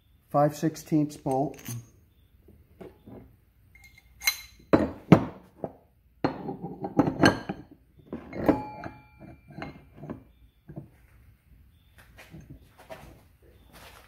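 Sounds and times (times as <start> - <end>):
steel bars clinking together: 1.3 - 1.9, 3.8 - 4.8, 8.3 - 10.1.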